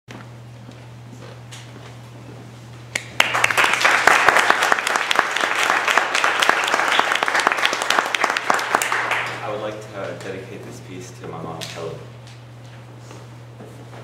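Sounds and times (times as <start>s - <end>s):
low steady hum: 0.1s - 14.0s
audience applauding: 3.0s - 9.7s.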